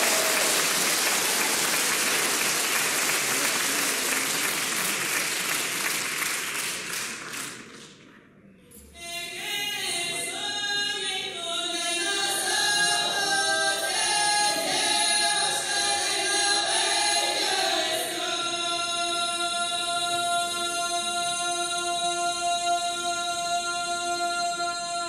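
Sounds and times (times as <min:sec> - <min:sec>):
group singing in harmony: 0:09.6 - 0:25.0.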